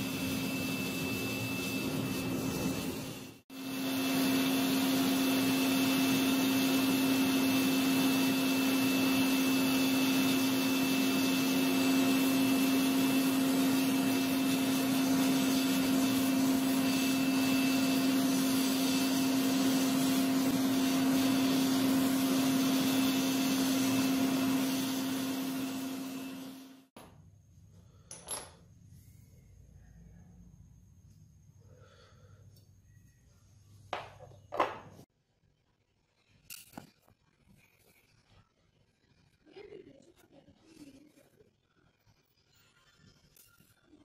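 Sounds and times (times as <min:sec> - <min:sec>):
gas forge whirring: 0:00.0 - 0:27.0.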